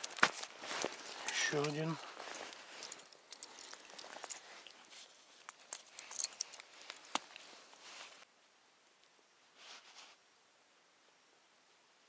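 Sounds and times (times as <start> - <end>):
fishing tackle clicking and rattling: 0.0 - 7.4.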